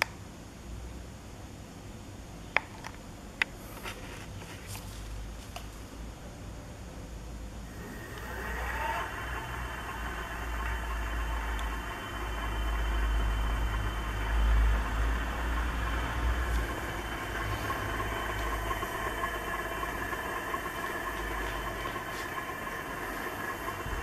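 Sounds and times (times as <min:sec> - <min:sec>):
electric hub motor whirring: 0:07.6 - 0:24.0.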